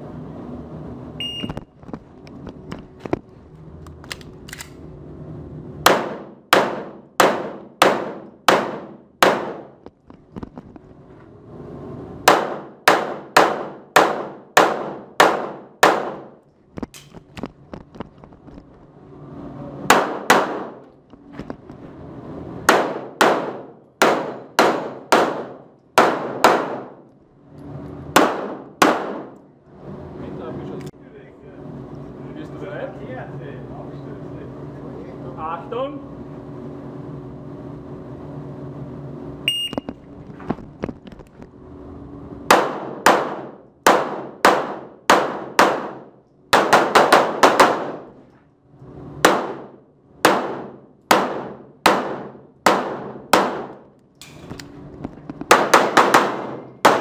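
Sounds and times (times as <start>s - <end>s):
short high beep: 1.2s - 1.6s, 39.5s - 39.9s
pistol shots echoing indoors: 5.8s - 9.8s, 12.3s - 16.4s, 19.9s - 20.9s, 22.7s - 27.1s, 28.2s - 29.4s, 42.5s - 48.1s, 49.2s - 53.9s, 55.5s - 57.0s.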